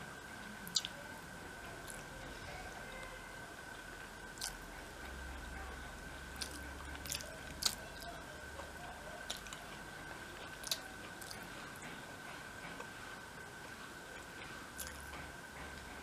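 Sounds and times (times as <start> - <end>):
faint high-pitched hum: 0.0 - 16.0
person chewing food: 0.6 - 1.0, 1.8 - 2.1, 4.4 - 4.6, 6.4 - 8.1, 9.2 - 9.7, 10.5 - 11.8, 14.2 - 15.1
wet mouth clicks and smacks: 0.7 - 1.0, 6.4 - 7.8, 10.6 - 11.4.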